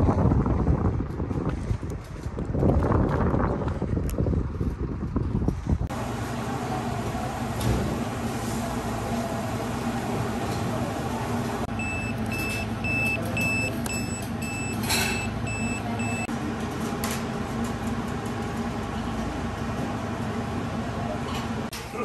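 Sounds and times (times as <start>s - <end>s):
pager beeping: 11.7s - 16.3s.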